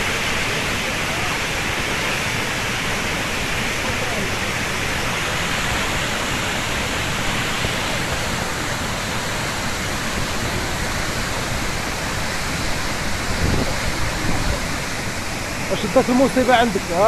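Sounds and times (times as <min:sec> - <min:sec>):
waterfall roaring: 0:00.0 - 0:17.0.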